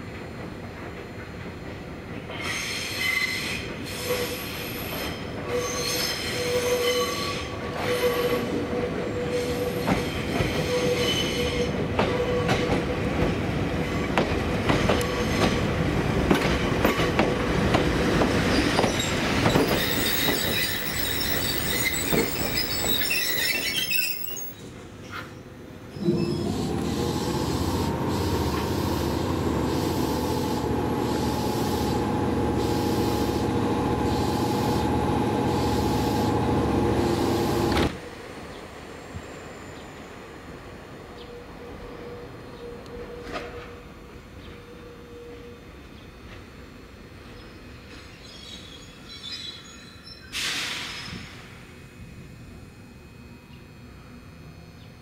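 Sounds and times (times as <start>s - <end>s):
electric train rolling slowly: 0.0s - 55.0s
wheels squealing: 18.5s - 24.7s
mechanical hum with high tone: 25.6s - 55.0s.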